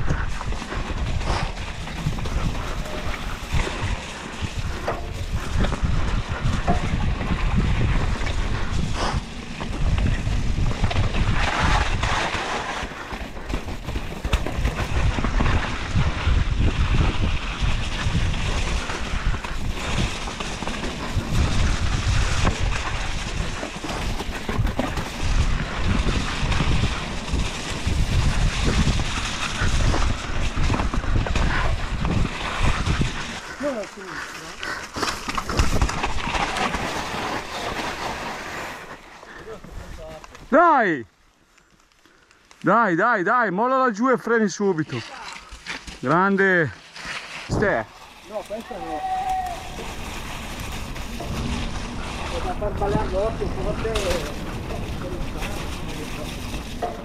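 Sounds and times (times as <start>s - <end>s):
wind buffeting microphone: 0.0s - 12.4s, 13.3s - 36.4s, 48.8s - 57.0s
bike knocks and rattles: 0.0s - 33.4s, 34.9s - 38.2s, 49.5s - 57.0s
bike tyre noise on mud: 0.0s - 57.0s.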